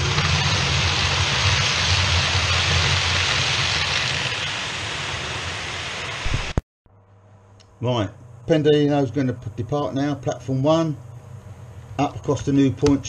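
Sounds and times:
low motor hum: 0:00.0 - 0:13.0.

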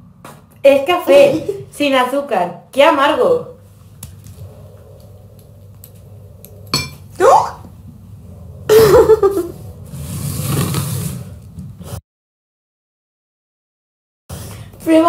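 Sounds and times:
fork clinking on a plate: 0:06.8 - 0:07.0
girl giggling: 0:08.7 - 0:09.6.

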